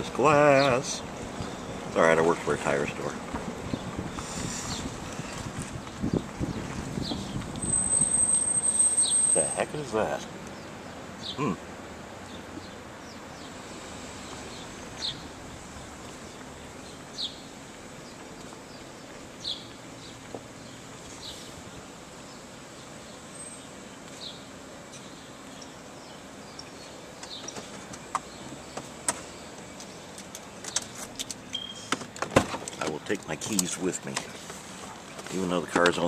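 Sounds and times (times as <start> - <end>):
outdoor background hiss: 0.0 - 36.0
sharp clicks and rattles: 29.8 - 34.3.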